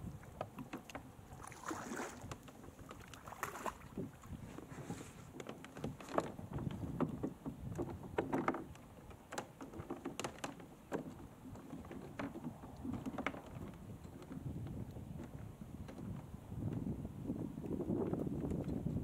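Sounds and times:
water lapping at a hull: 0.0s - 19.0s
light knocks and clatters: 4.4s - 16.9s.

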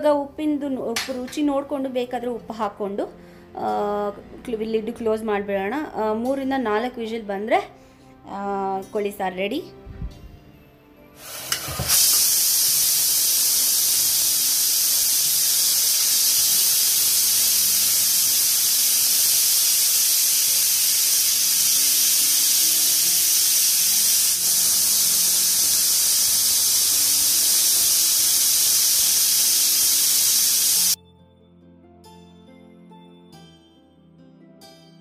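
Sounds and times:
faint background music: 0.0s - 35.0s
pressure cooker steam hissing: 11.2s - 31.0s.

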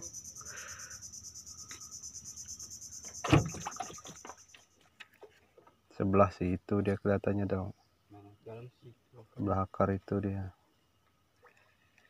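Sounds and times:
insects chirring: 0.0s - 12.0s
short thump: 3.2s - 3.7s.

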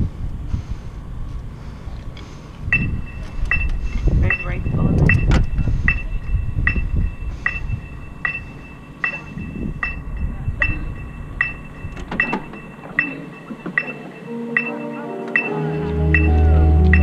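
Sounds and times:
low rumble on microphone: 0.0s - 12.6s
electronic metronome beeping: 2.7s - 17.0s.

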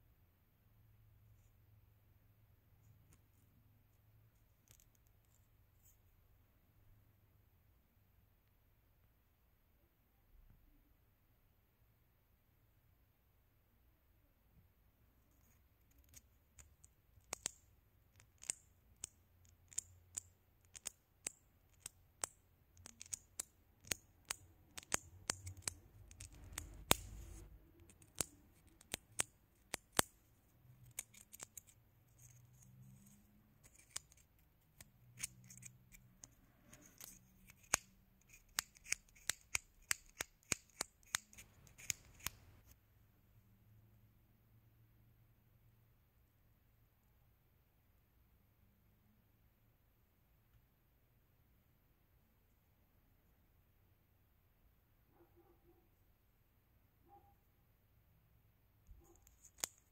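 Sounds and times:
fingernails clicking together: 36.9s - 42.4s.

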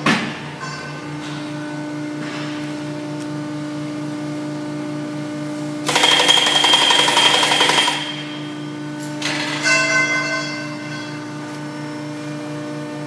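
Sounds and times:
tube bending machine humming: 0.0s - 13.0s
machine rattling and chattering: 5.9s - 8.2s.

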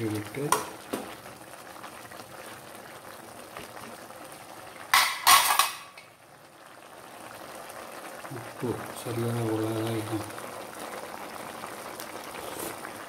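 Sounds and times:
soup simmering: 0.0s - 13.0s
steel cookware clattering: 4.9s - 6.0s.

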